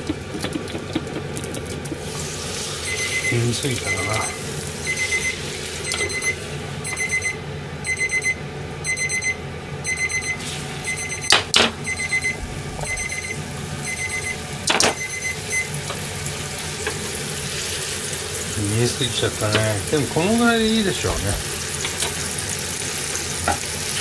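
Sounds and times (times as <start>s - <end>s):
timer beeping: 2.8s - 15.7s.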